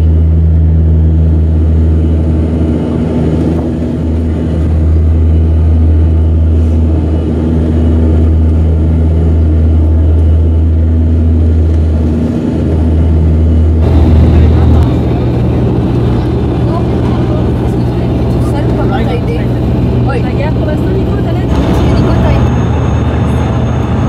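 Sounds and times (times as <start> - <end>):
turboprop cabin drone: 0.0 - 24.0.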